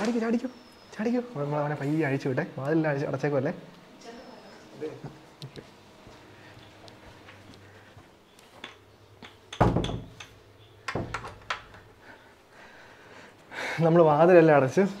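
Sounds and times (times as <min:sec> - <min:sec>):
wooden door thud: 0:09.6 - 0:10.2, 0:10.9 - 0:11.7.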